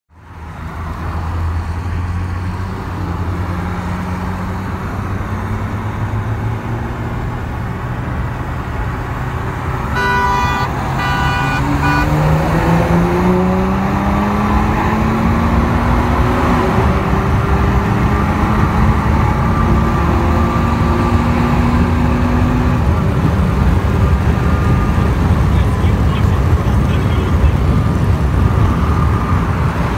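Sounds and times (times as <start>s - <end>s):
diesel engine accelerating: 0.5s - 29.9s
car horn toots: 9.8s - 12.4s.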